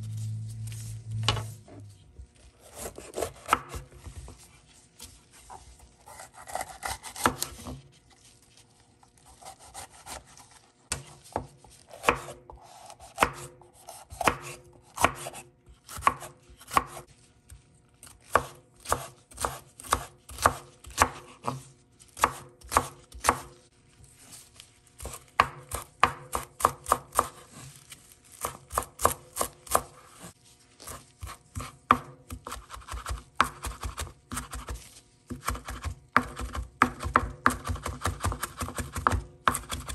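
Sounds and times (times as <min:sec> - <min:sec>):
knife chopping on cutting board: 0:02.6 - 0:04.3, 0:06.0 - 0:07.8, 0:09.4 - 0:10.3, 0:10.9 - 0:17.1, 0:18.3 - 0:23.6, 0:25.0 - 0:27.7, 0:28.4 - 0:39.9.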